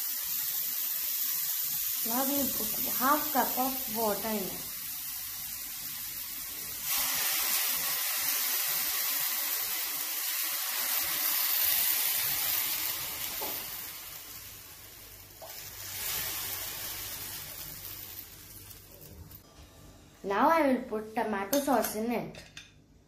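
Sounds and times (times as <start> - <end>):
water sizzling in a hot pan: 0.0 - 19.5.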